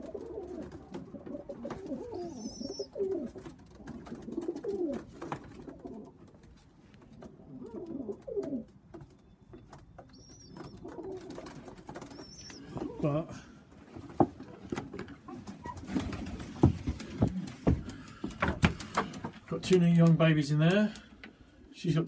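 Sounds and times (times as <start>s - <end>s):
pigeons cooing: 0.0s - 6.5s, 7.1s - 8.7s, 10.1s - 13.6s.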